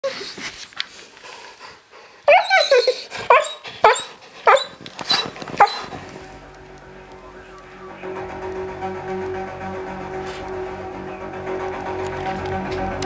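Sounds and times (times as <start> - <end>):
dog barking high-pitched: 2.3 - 5.9
dog whining: 2.3 - 6.1.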